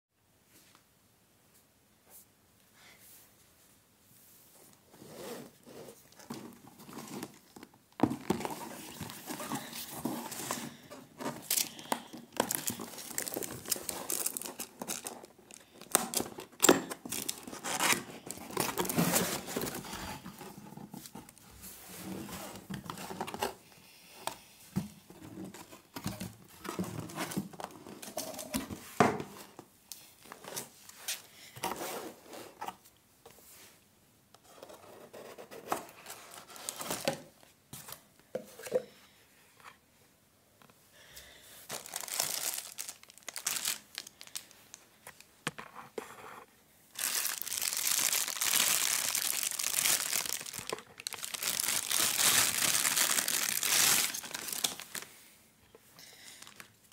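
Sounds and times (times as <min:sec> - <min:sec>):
cardboard packaging rustling: 0:05.0 - 0:23.6, 0:24.8 - 0:29.6, 0:34.6 - 0:38.0, 0:41.7 - 0:45.2, 0:46.9 - 0:55.1, 0:56.4 - 0:56.9
plastic bag crinkling: 0:06.2 - 0:20.4, 0:41.7 - 0:44.8, 0:46.9 - 0:55.1, 0:56.4 - 0:56.7.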